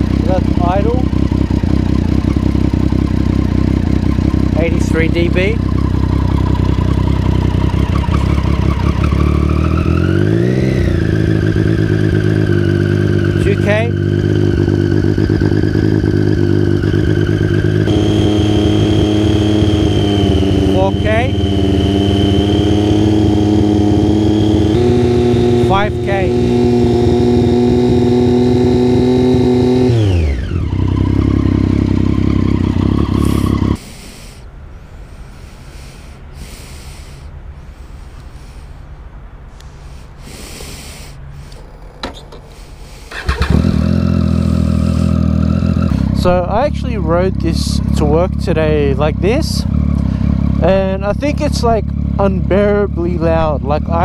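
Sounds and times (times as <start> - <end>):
motorcycle engine revving: 0.0 - 36.5, 41.2 - 54.0.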